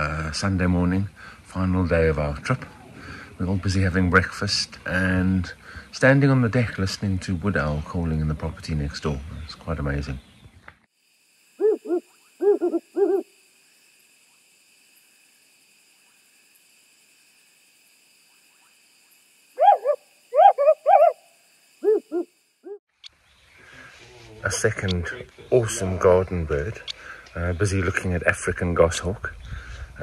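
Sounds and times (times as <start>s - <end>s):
owl hooting: 11.6s - 13.3s, 19.6s - 22.8s.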